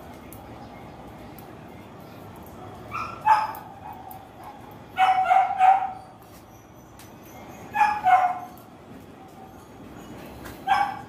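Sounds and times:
dog barking: 2.9s - 6.0s, 7.8s - 8.5s, 10.6s - 11.0s.

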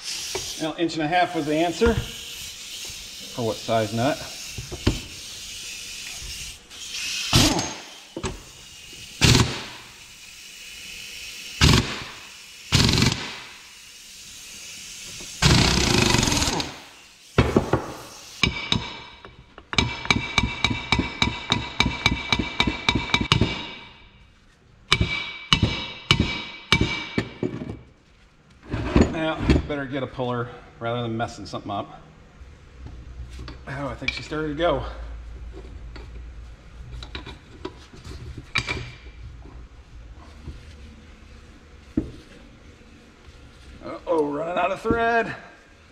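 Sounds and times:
impact wrench bursts: 0.0s - 23.9s.

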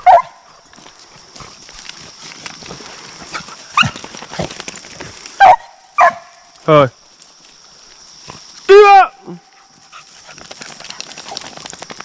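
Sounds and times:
hounds barking: 0.0s - 0.5s, 5.4s - 6.4s.

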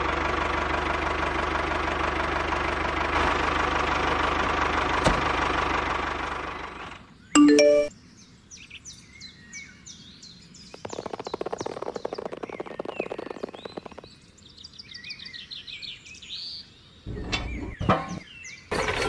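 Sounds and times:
small birds chirping: 8.0s - 18.7s
rapid fine ticks: 10.8s - 14.1s.

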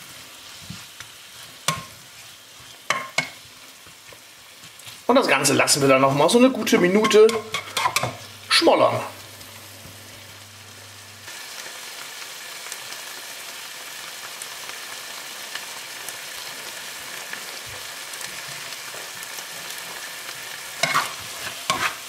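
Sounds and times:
spatula scraping a pan: 0.0s - 5.1s, 6.6s - 8.3s, 20.7s - 22.0s
meat and onions sizzling in a pan: 0.0s - 22.0s.

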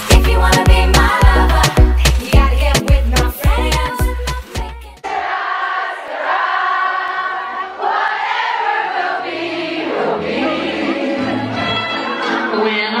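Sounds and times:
choir singing over music: 0.0s - 2.0s, 5.0s - 13.0s.

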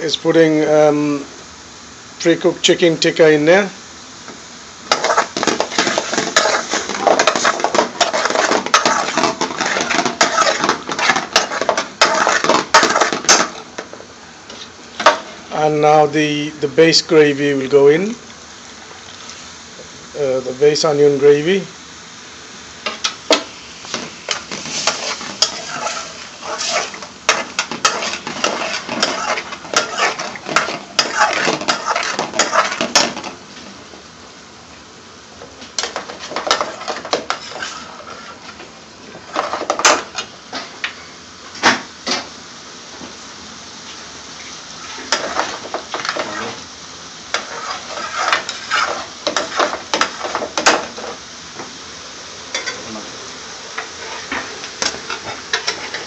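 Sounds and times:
sauce sizzling: 0.0s - 56.0s
metal ladle scraping a pan: 4.9s - 13.9s, 22.9s - 33.4s, 35.8s - 38.6s, 44.8s - 46.6s, 47.3s - 51.2s, 53.9s - 54.5s, 55.1s - 56.0s.

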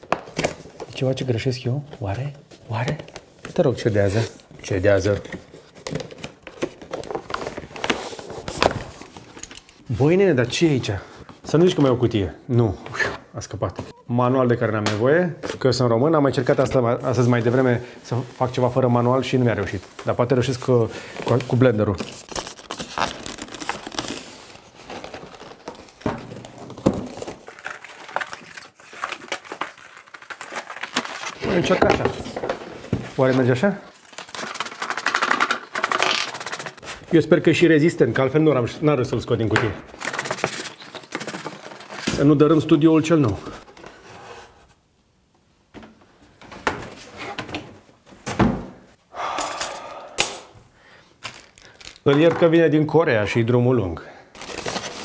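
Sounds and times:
packaging crinkling and rustling: 2.0s - 9.8s, 18.5s - 37.2s, 39.4s - 44.0s, 51.2s - 52.4s, 54.3s - 55.0s.

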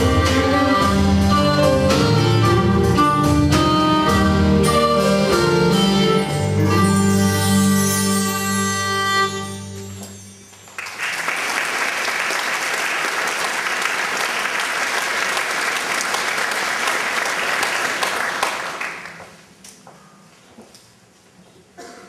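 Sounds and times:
audience applauding: 10.6s - 19.4s.

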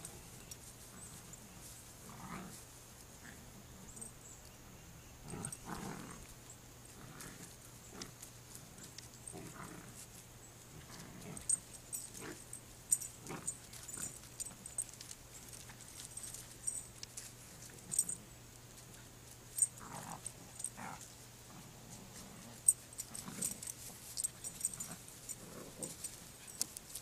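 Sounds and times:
rustling in leafy shrubbery: 0.0s - 27.0s
puppies growling and grunting: 5.2s - 6.3s, 6.9s - 10.0s, 10.7s - 14.8s.

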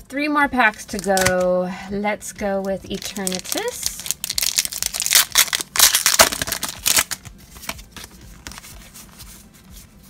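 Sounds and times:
foil wrapper crinkling and tearing: 2.9s - 7.2s
cards rustling and clicking: 2.9s - 9.4s.

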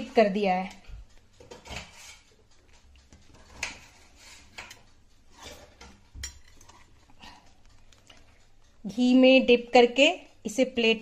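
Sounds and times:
utensils tapping a ceramic plate: 3.0s - 6.9s.

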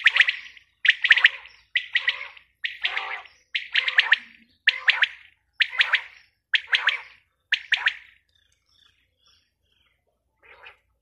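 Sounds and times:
quail calling: 0.0s - 8.2s.

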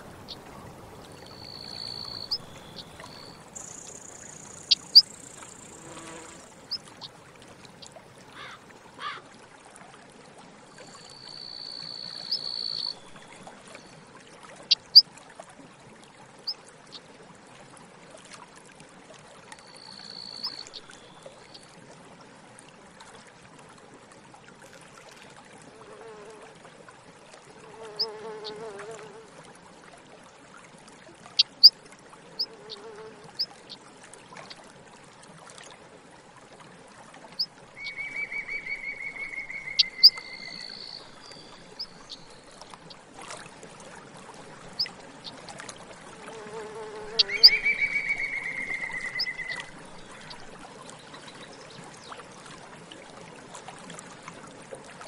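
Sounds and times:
buzzy insect trills: 1.2s - 6.6s
fly buzzing past: 5.6s - 6.6s, 46.3s - 47.5s.

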